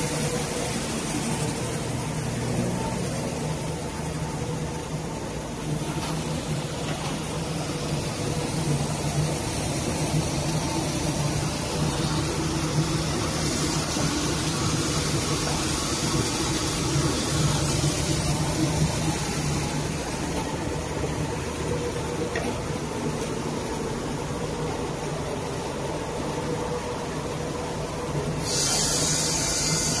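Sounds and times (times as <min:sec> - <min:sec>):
rushing wash of polishing heads: 0:07.5 - 0:20.4, 0:28.4 - 0:30.0
polishing machine drone: 0:28.4 - 0:30.0.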